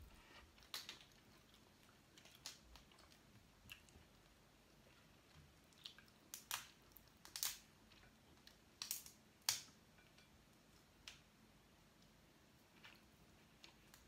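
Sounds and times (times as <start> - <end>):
shellfish shells cracking: 0.6 - 1.2, 6.3 - 7.7, 8.8 - 9.8.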